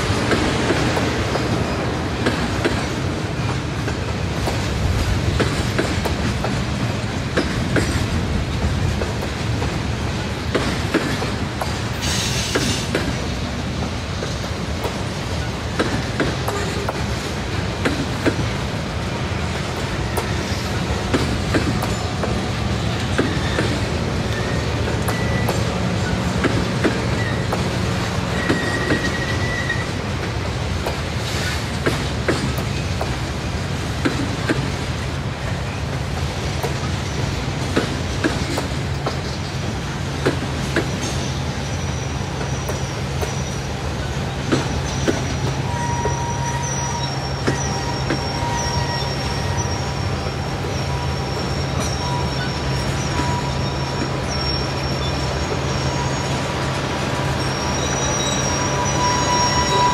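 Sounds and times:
train wheels rumbling on rail: 0.0 - 59.9
wheels clicking over rail joints: 0.1 - 41.4
high wheel squeal: 23.2 - 30.1, 40.9 - 59.9.

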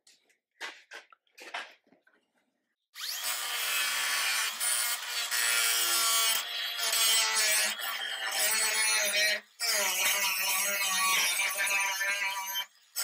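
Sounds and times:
angle grinder grinding metal: 3.0 - 13.0.

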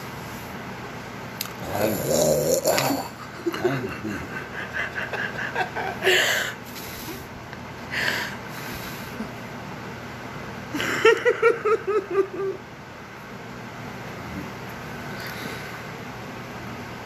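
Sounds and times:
woman laughing: 3.2 - 6.5, 10.8 - 12.6.

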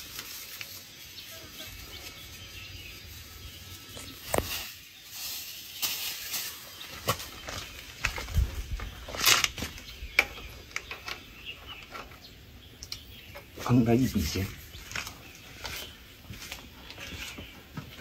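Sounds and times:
plastic rustling: 0.0 - 12.1.

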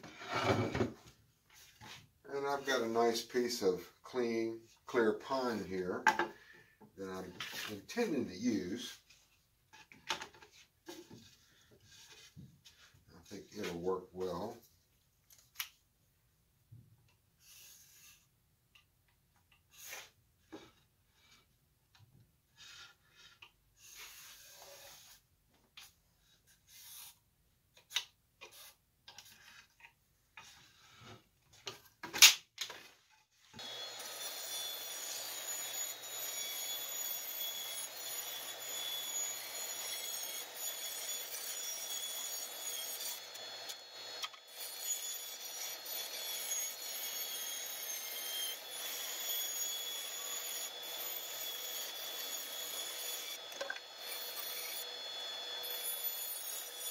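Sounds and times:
bandsaw cutting wood: 33.6 - 56.9.

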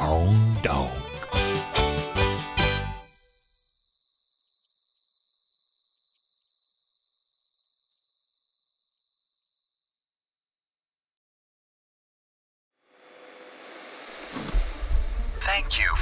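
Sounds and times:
crickets chirping: 2.4 - 11.2.

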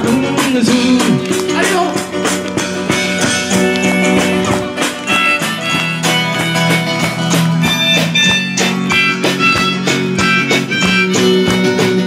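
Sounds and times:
small band playing a song: 0.0 - 12.0
strummed guitar: 0.0 - 12.0.

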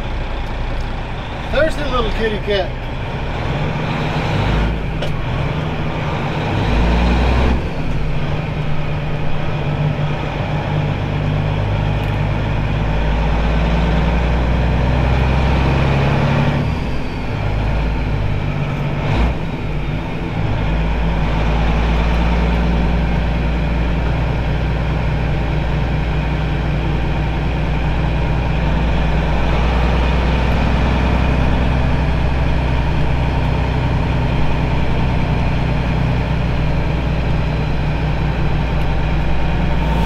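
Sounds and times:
diesel truck engine shifting gears: 0.0 - 40.0.

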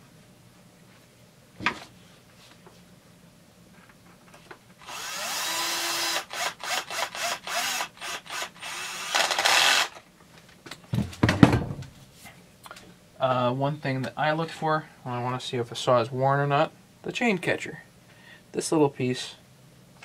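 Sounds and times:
cordless drill driving bolt: 4.8 - 10.0
dull knocks: 10.9 - 12.0.

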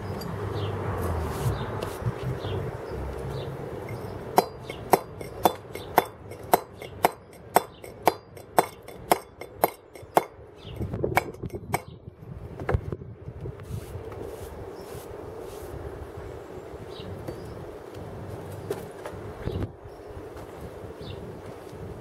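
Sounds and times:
mallet striking chisel on stone: 3.9 - 10.4.

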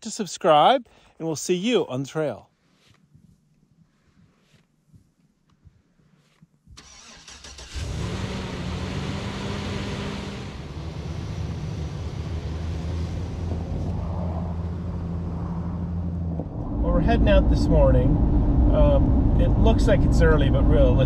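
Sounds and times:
engine cranking: 6.8 - 8.3.

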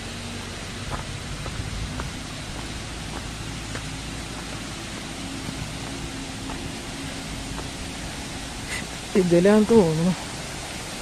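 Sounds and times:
waterfall rushing: 0.0 - 11.0
footsteps on dry leaves: 0.9 - 8.2.

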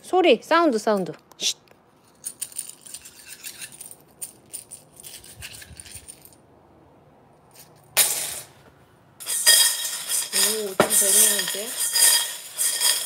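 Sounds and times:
plastic pieces rattling in a pan: 9.2 - 13.0.

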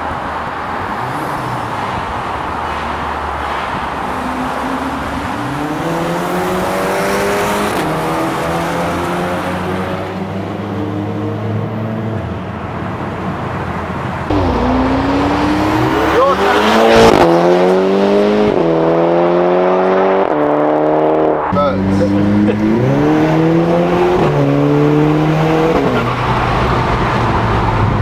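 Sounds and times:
car engine accelerating hard: 3.3 - 11.9, 14.3 - 28.0.

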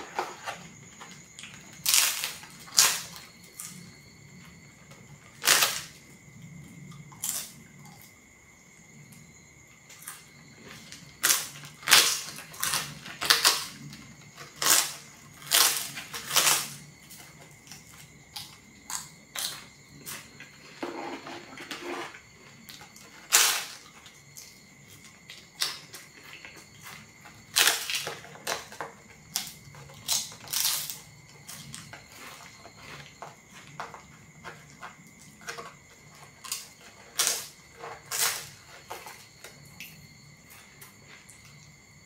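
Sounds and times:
crispy crackers crunching: 0.0 - 3.8, 5.2 - 6.0, 10.0 - 20.8, 22.5 - 39.6.

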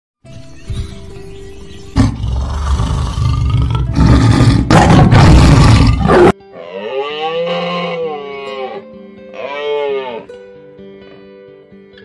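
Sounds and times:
tiger roaring: 2.0 - 6.4.

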